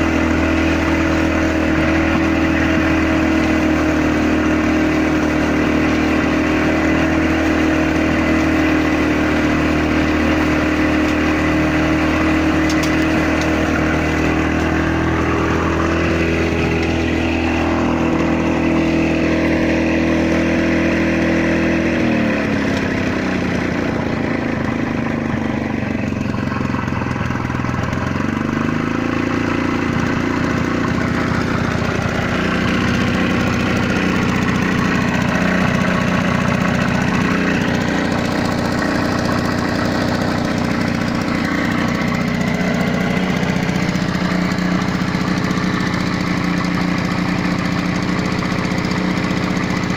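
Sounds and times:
lawn mower engine running: 0:00.0 - 0:49.9.

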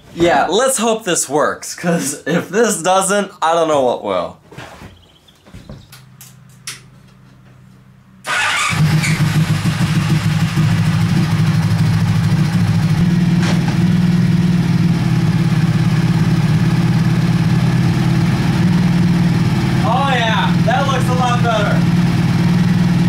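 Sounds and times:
motorcycle engine starting and running: 0:08.2 - 0:23.0.

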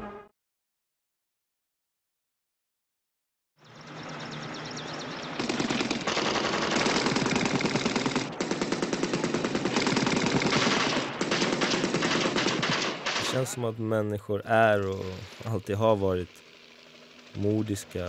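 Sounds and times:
automatic rifle fire: 0:05.4 - 0:13.5.

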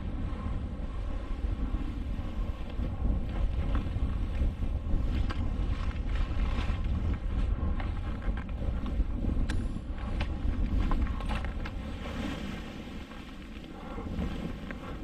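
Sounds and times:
wind buffeting microphone: 0:00.0 - 0:15.0
light snow crunches: 0:01.5 - 0:15.0
skis hissing through snow: 0:11.8 - 0:14.6.

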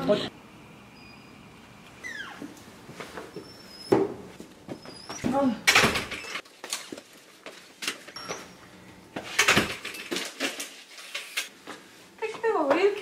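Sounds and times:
front door shutting: 0:05.2 - 0:06.4
parcels and bags rustling: 0:06.4 - 0:08.4.

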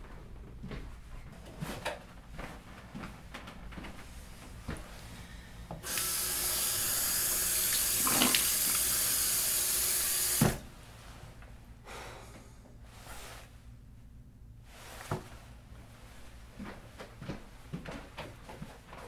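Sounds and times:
water running from sink tap: 0:05.8 - 0:10.5.

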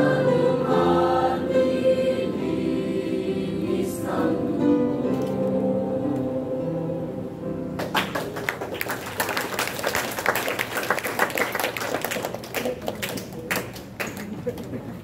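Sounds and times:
choir holding chord: 0:00.0 - 0:07.7
audience applause: 0:07.8 - 0:14.8.

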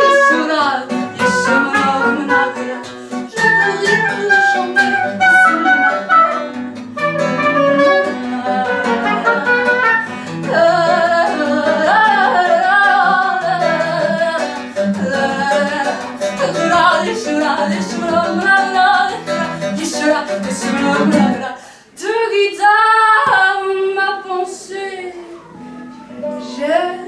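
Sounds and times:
woman singing: 0:00.0 - 0:06.4, 0:07.3 - 0:27.0
acoustic guitar strumming: 0:00.0 - 0:21.6, 0:23.1 - 0:27.0.

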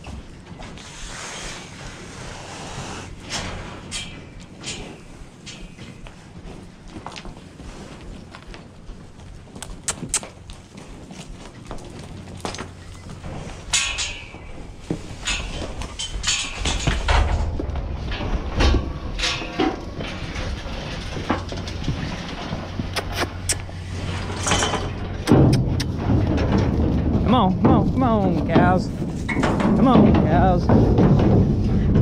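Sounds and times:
hooves on packed dirt: 0:00.0 - 0:32.0
metal gates clanking: 0:03.2 - 0:06.0, 0:12.5 - 0:32.0
low rumble: 0:10.5 - 0:32.0.

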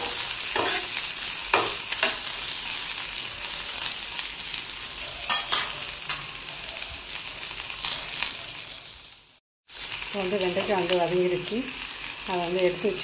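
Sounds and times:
spatula scraping a pan: 0:00.0 - 0:02.4
okra sizzling in hot oil: 0:00.0 - 0:13.0.

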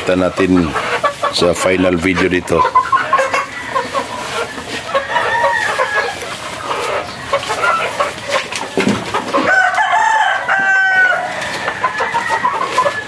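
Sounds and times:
chickens clucking: 0:00.0 - 0:13.0
rooster crowing: 0:03.4 - 0:06.3, 0:09.4 - 0:13.0.

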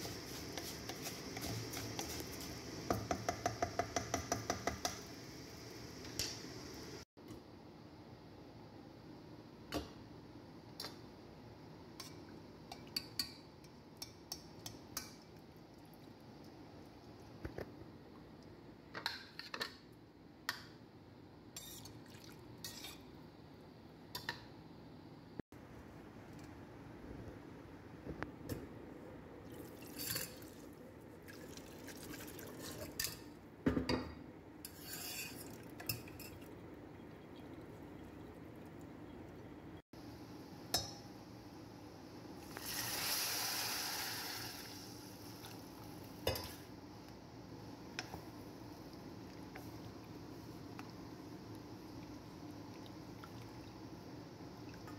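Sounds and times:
metal spoon scraping a pot: 0:34.6 - 0:36.4
broth sizzling in hot pan: 0:42.4 - 0:45.8.

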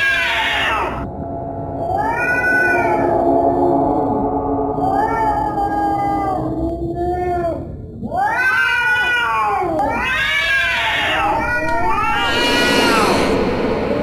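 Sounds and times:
cat yowling: 0:00.0 - 0:01.0, 0:01.9 - 0:03.1, 0:04.8 - 0:12.2.

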